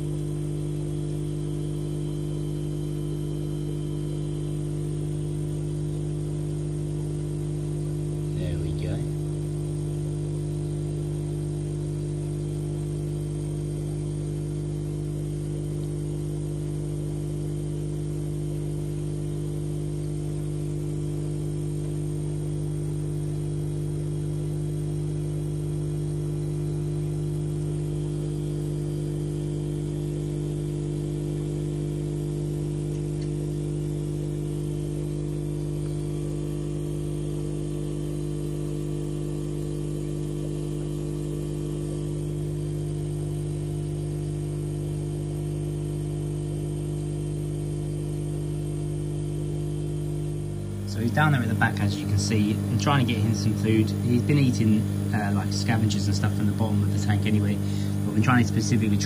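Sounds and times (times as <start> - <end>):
aquarium equipment humming: 0.0 - 59.0.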